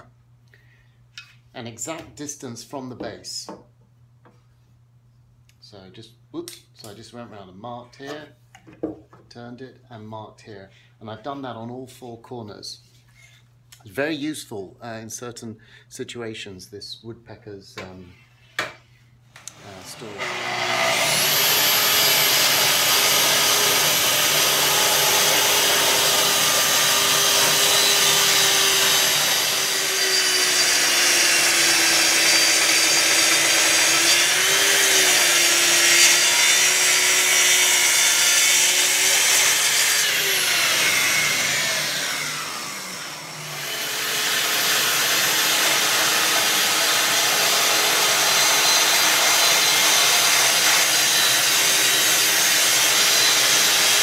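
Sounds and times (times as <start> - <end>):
circular saw cutting wood: 19.5 - 54.0.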